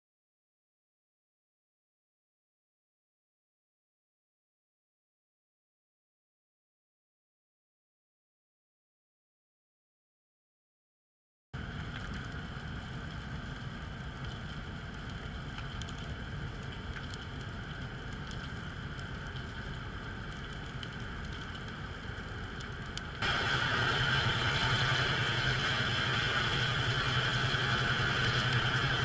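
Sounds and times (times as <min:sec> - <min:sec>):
low hum: 0:11.6 - 0:29.0
faint clicks: 0:13.6 - 0:23.2
underwater hiss: 0:23.2 - 0:29.0.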